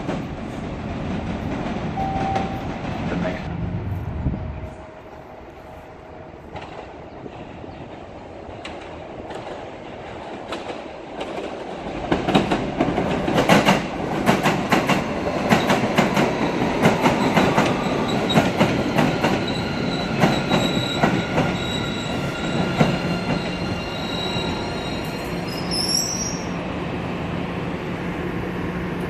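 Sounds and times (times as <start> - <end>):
subway train rumble: 0.0 - 29.0
high wheel squeal: 19.4 - 26.6.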